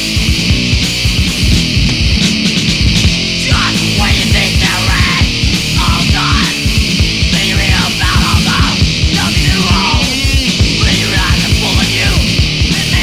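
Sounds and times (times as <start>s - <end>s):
distorted electric guitars: 0.0s - 13.0s
fast pounding drums: 0.0s - 13.0s.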